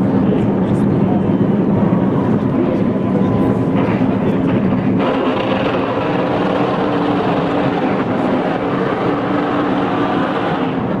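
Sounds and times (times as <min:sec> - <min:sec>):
car engine at high revs: 0:04.9 - 0:11.0.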